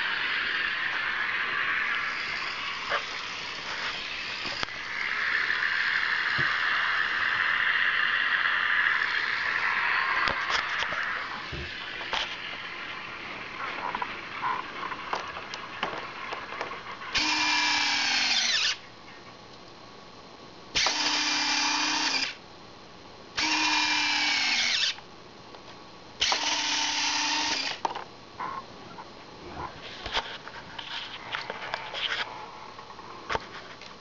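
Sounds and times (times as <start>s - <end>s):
landing gear motor whirring: 0.0s - 18.8s, 23.4s - 25.0s, 26.2s - 27.8s.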